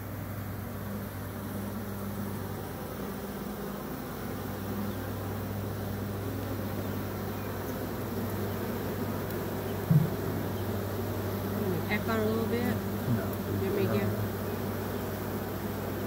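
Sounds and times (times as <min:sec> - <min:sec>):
bee swarm buzzing: 0:00.0 - 0:16.0
short thump: 0:09.8 - 0:10.3.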